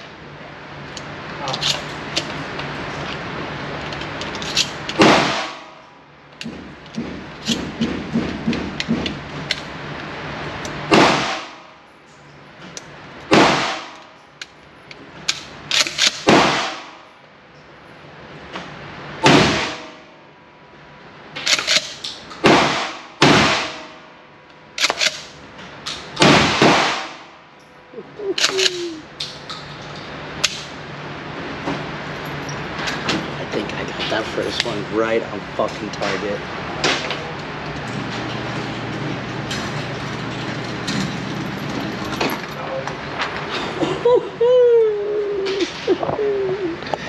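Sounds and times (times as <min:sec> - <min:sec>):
gunshots ringing indoors: 0:05.0 - 0:05.8, 0:10.9 - 0:11.7, 0:13.3 - 0:14.0, 0:15.7 - 0:17.1, 0:19.2 - 0:20.1, 0:21.4 - 0:24.1, 0:26.2 - 0:27.4.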